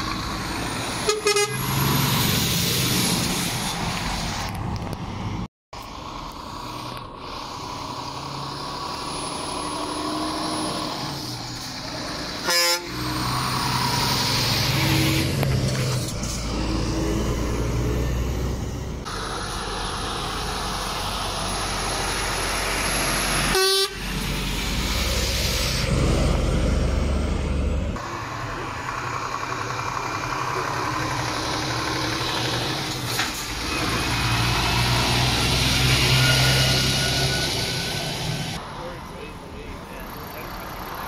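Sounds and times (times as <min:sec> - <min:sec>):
truck diesel engines: 0:00.0 - 0:41.0
truck horn toot: 0:01.0 - 0:01.7, 0:12.4 - 0:13.1, 0:23.5 - 0:24.1.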